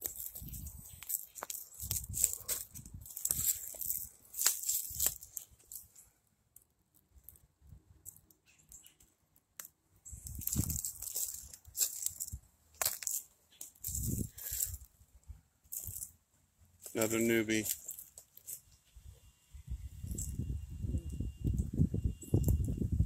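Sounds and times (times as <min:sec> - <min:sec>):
footsteps crunching through dry leaves: 0:00.0 - 0:05.9, 0:10.1 - 0:14.9, 0:16.8 - 0:18.7.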